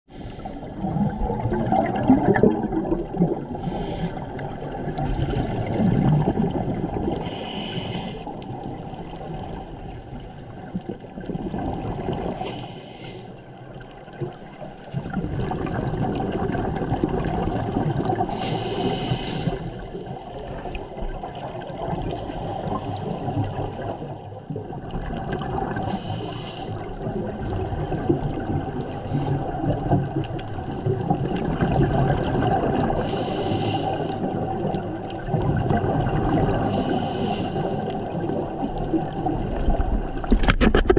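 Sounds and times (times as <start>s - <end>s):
bubbling exhalations: 0.4s - 7.5s, 14.9s - 18.9s, 26.8s - 40.9s
regulator inhalation hisses: 3.6s - 4.3s, 7.2s - 8.3s, 12.4s - 13.4s, 18.3s - 19.9s, 25.9s - 26.9s, 33.0s - 34.2s, 36.6s - 38.0s.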